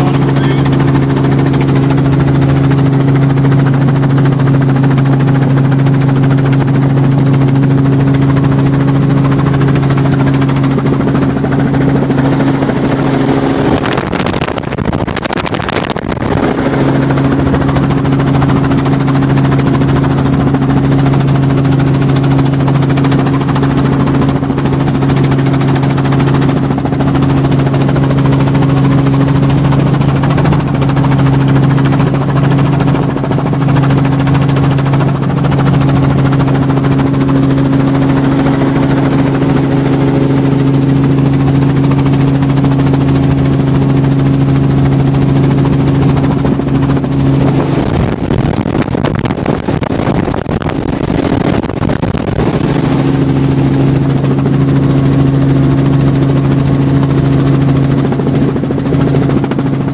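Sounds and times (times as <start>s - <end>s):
rush of noise: 0.0s - 4.7s, 10.8s - 20.0s, 35.8s - 41.9s, 46.0s - 54.8s
helicopter engine and rotors drone: 0.0s - 59.9s.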